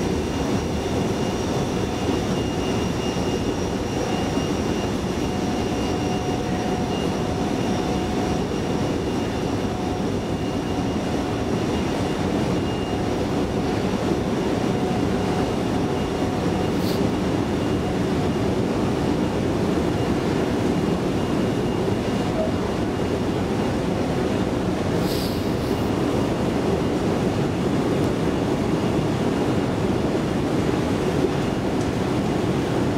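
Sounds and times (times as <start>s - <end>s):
escalator mechanical rumble: 0.0s - 25.0s
faint whine: 0.0s - 29.8s.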